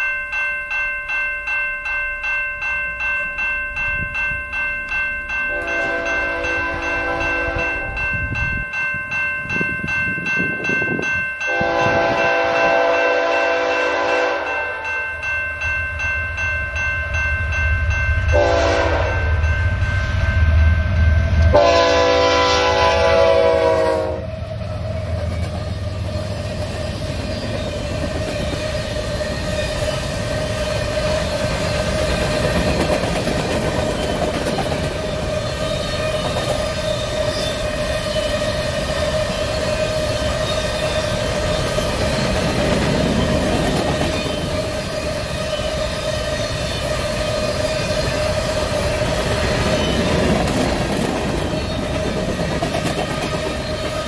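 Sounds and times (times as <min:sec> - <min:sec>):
train wheels on rail: 0:03.2 - 0:54.0
locomotive horn blasts: 0:05.5 - 0:08.0, 0:11.5 - 0:14.9, 0:18.3 - 0:19.4, 0:21.5 - 0:24.3.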